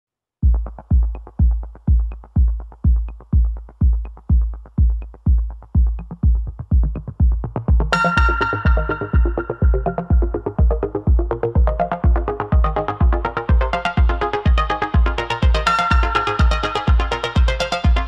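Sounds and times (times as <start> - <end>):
electronic dance music: 0.4 - 18.0
steady kick drum: 0.4 - 18.0
bright synth melody: 7.9 - 18.0.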